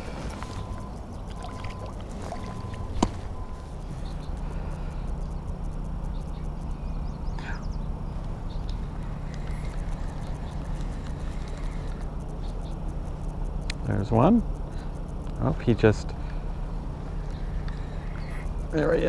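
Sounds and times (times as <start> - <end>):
water moving around float tube: 0.0 - 3.3
steady low rumble: 0.0 - 19.0
sharp click: 8.2 - 13.9.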